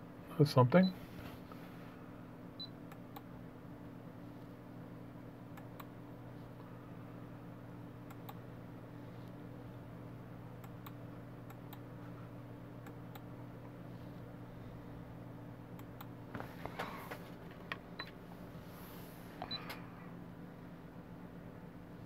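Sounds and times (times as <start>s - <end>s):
low electrical hum: 0.0s - 22.0s.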